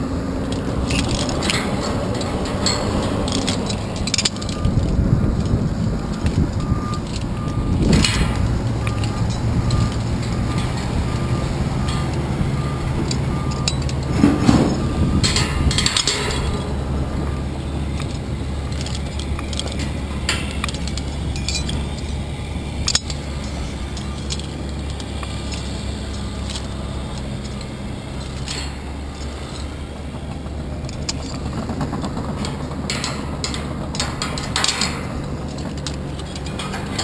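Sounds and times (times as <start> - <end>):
wind rumble on microphone: 0.0 - 26.4
carabiners clinking on steel: 0.0 - 37.0.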